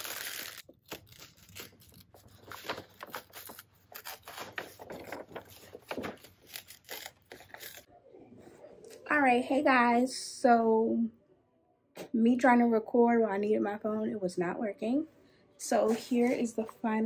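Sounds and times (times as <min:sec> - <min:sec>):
paper bag rustling and tearing: 0:00.0 - 0:07.9.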